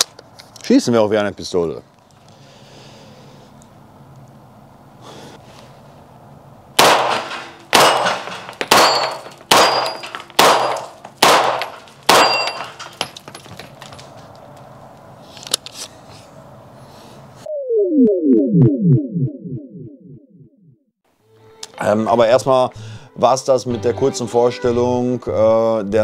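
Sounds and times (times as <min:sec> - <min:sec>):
pistol shots echoing: 0:06.8 - 0:12.7
steel targets ringing: 0:06.8 - 0:13.0.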